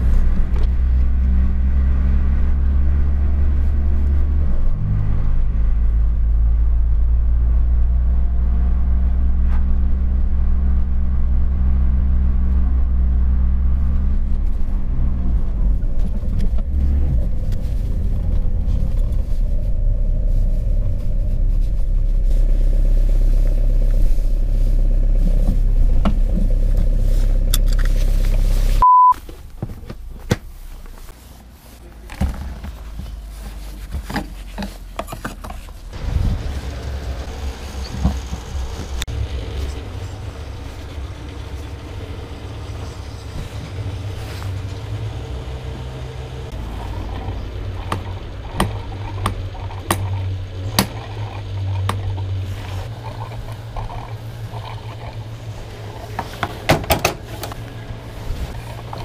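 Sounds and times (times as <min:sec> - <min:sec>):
diesel car engine running: 0:00.0 - 0:59.0
short high beep: 0:28.8 - 0:29.2.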